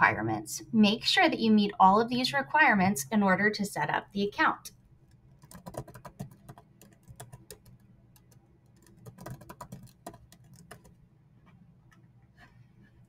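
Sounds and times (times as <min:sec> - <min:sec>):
low steady hum: 0:00.0 - 0:13.0
keyboard keystrokes: 0:05.1 - 0:11.0.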